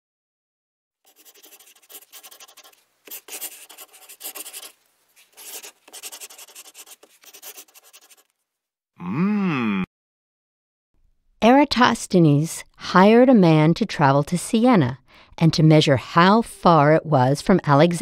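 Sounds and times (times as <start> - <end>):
pencil scribbling: 1.1 - 8.3.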